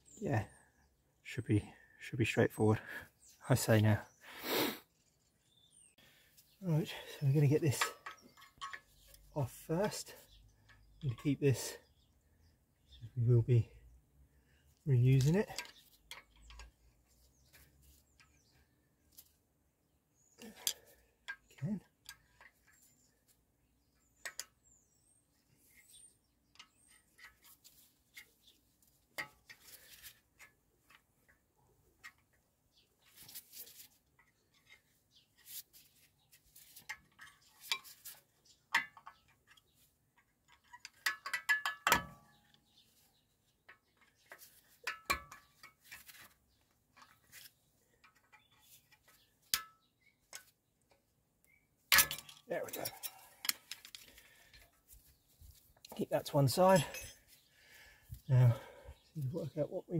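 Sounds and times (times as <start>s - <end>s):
faint metal clicks and scrapes: 7.2s - 11.3s, 15.1s - 19.4s, 25.6s - 32.4s, 33.0s - 57.5s.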